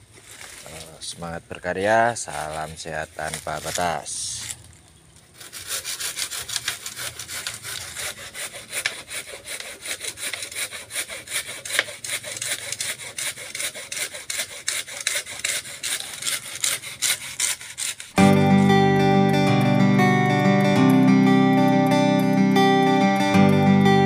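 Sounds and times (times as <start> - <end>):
hand saw cutting wood: 2.2 - 4.6, 5.3 - 18.3.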